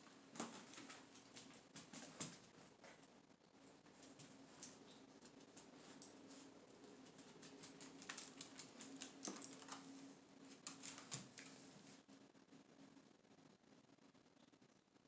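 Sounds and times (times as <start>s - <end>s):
low steady hum: 0.0s - 15.0s
dog claws clicking on wood floor: 0.3s - 3.0s, 7.0s - 9.9s, 10.5s - 11.6s.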